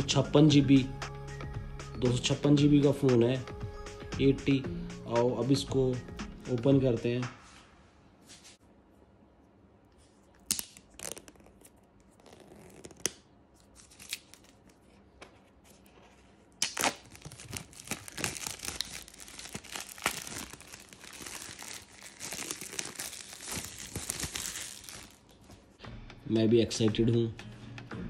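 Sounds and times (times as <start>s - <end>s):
packaging tearing: 10.4s - 14.8s, 16.6s - 25.3s.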